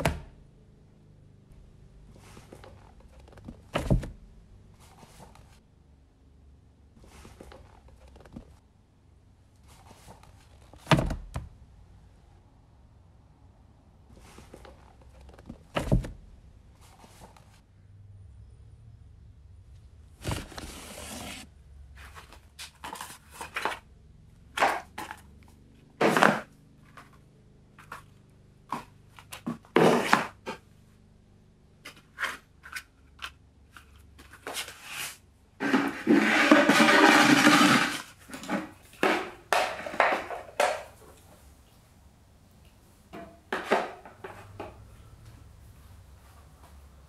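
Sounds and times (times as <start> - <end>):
books and papers handled: 4.7 - 5.6, 9.6 - 11.0, 16.8 - 17.6, 20.2 - 23.9, 24.5 - 25.4, 26.0 - 27.2, 27.8 - 30.6, 31.8 - 41.4.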